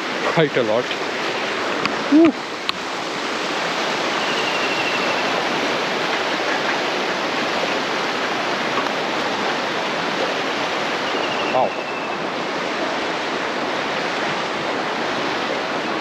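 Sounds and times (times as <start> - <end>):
fast-flowing river water: 0.0 - 16.0
person exclaiming: 2.1 - 2.4.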